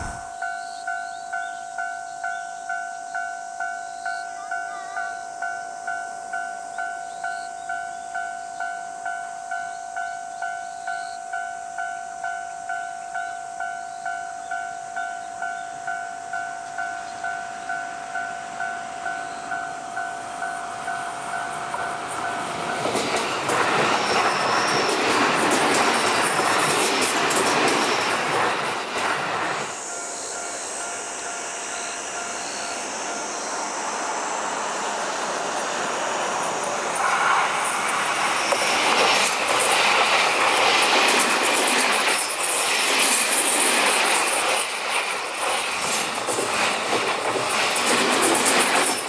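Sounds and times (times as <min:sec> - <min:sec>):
train wheels rumbling on rails: 0:00.0 - 0:02.4, 0:13.9 - 0:49.0
level-crossing warning bell: 0:00.0 - 0:28.8, 0:29.7 - 0:34.0.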